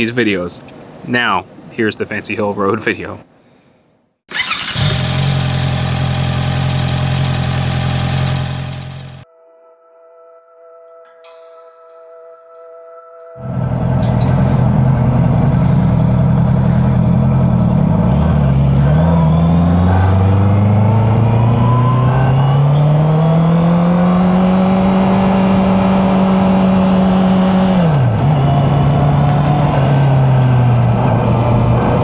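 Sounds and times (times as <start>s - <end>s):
motorcycle engine running: 4.3s - 9.2s, 13.4s - 32.0s.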